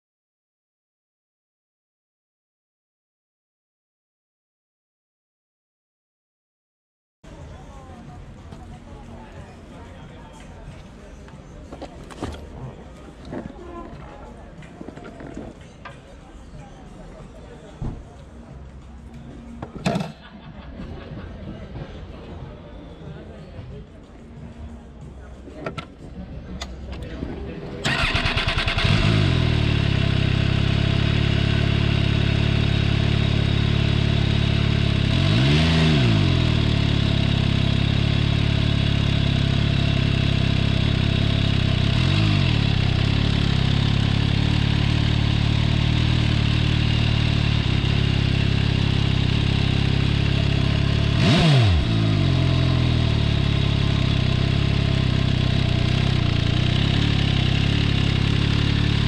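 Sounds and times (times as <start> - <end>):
motorcycle engine idling and revving: 10.6 - 16.4, 27.8 - 59.0.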